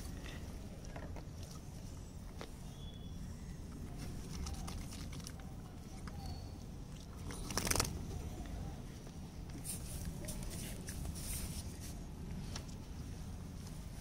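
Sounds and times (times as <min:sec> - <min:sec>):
rustling and scratching of fur: 0:09.0 - 0:14.0.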